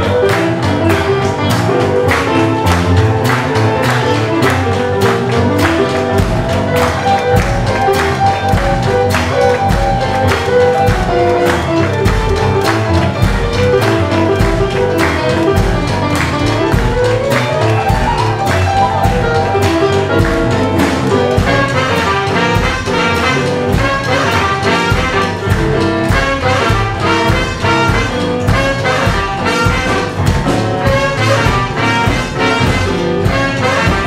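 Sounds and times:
electric guitars: 0.0 - 31.0
bass: 0.0 - 34.0
drum beat: 0.0 - 34.0
trumpet and saxophone horn lines: 21.4 - 34.0.

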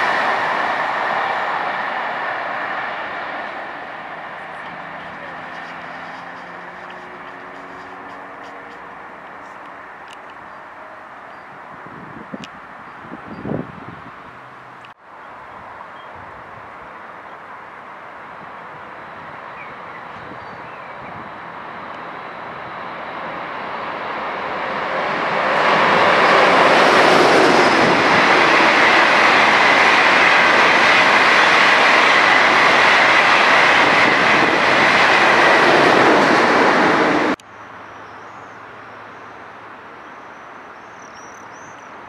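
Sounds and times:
electric train passing: 0.0 - 38.0.

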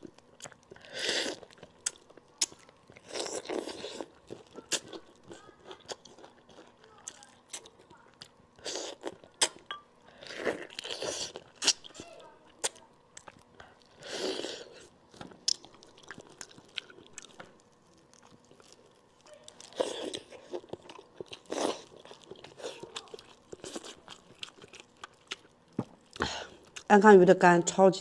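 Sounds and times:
chewing and biting: 0.0 - 9.6, 10.2 - 12.0, 12.6 - 26.9.

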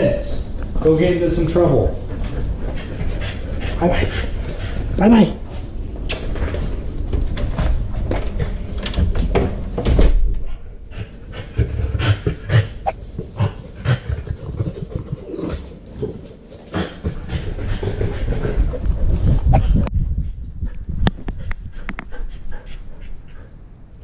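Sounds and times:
dog breathing: 0.4 - 5.9, 10.4 - 23.9.

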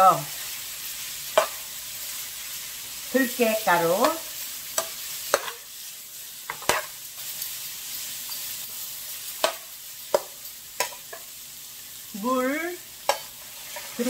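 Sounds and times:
food sizzling in a frying pan: 0.0 - 14.0
metal spoon scraping a pan: 1.2 - 2.2, 3.8 - 5.9, 6.5 - 7.5, 8.3 - 11.4, 13.0 - 14.0.

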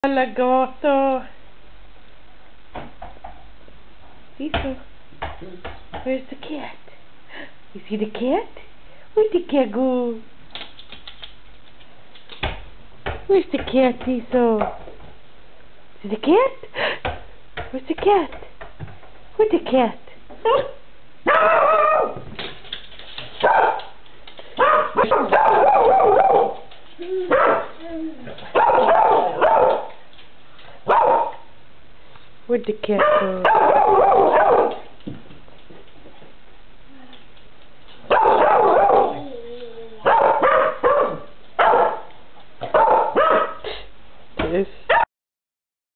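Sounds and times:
dog barking: 20.5 - 22.2, 23.4 - 24.0, 24.6 - 26.6, 27.3 - 27.8, 28.5 - 30.0, 30.8 - 31.5, 33.0 - 34.9, 38.1 - 39.4, 40.0 - 43.7, 44.9 - 45.1.

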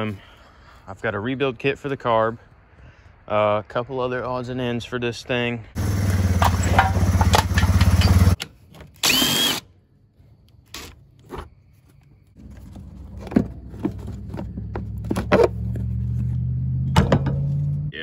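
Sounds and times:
engine running: 5.8 - 8.4
cordless drill whirring: 9.0 - 9.6.

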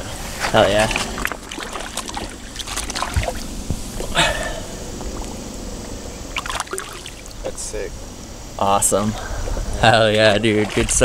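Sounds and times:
river water sloshing and trickling: 0.0 - 4.1, 6.2 - 7.7, 9.4 - 11.0
small water splashes: 0.8 - 3.6, 6.3 - 7.5, 10.2 - 11.0.

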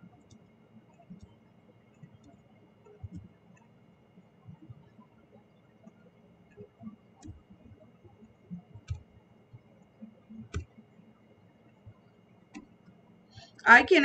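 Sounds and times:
faint steady hum: 0.0 - 14.0
keyboard and mouse clicks: 2.0 - 3.7, 5.8 - 7.8, 8.6 - 9.1, 10.3 - 10.8, 11.7 - 12.8.

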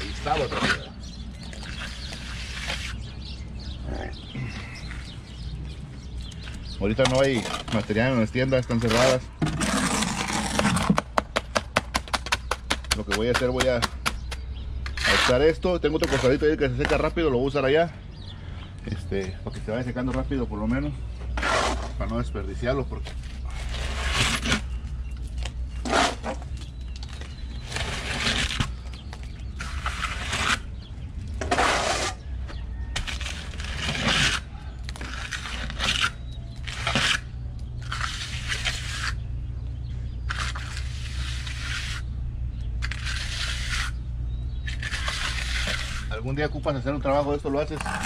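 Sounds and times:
trowel scraping wet cement: 0.0 - 3.1, 6.9 - 11.2, 11.8 - 17.1, 21.3 - 22.2, 22.9 - 24.8, 25.8 - 30.8, 31.4 - 32.2, 32.9 - 39.3, 40.2 - 42.1, 42.8 - 46.6
low hum: 17.9 - 46.2.

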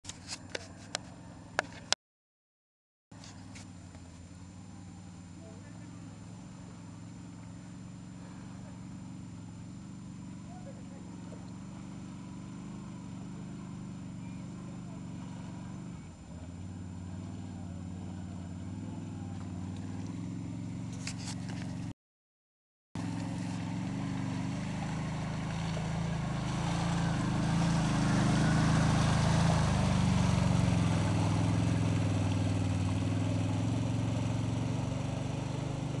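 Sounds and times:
quad bike engines running: 0.1 - 2.0, 3.2 - 21.9, 23.0 - 36.0
water churning: 23.0 - 36.0.

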